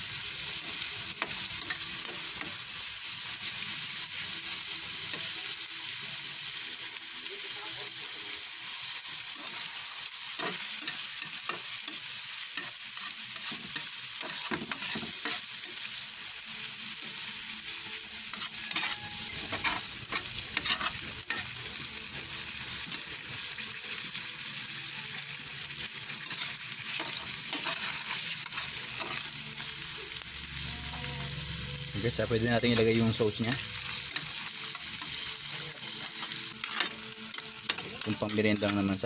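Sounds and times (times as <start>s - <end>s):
meat sizzling in a pan: 0.0s - 39.0s
spatula scraping a pan: 10.3s - 12.0s, 12.6s - 16.0s, 17.8s - 21.6s, 26.1s - 29.8s, 32.6s - 38.8s.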